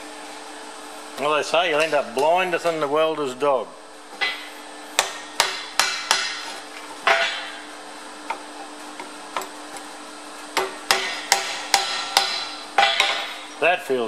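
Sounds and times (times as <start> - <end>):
steady low hum: 0.0 - 14.0
hammer striking metal: 4.2 - 6.5, 7.1 - 7.6, 10.6 - 13.4.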